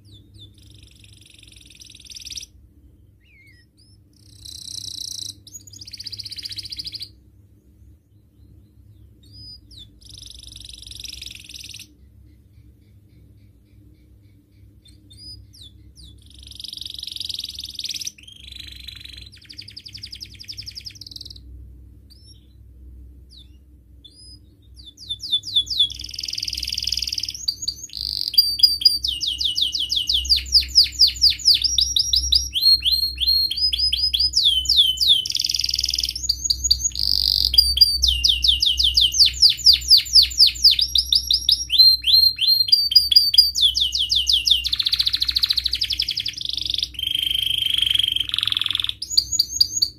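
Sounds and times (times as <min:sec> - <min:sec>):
canary singing: 0:00.0 - 0:49.9.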